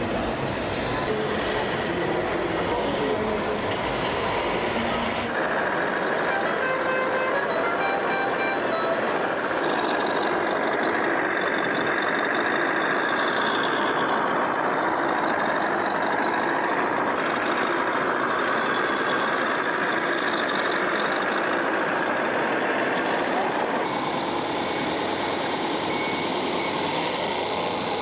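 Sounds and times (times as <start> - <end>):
model truck motor running: 8.9 - 28.0.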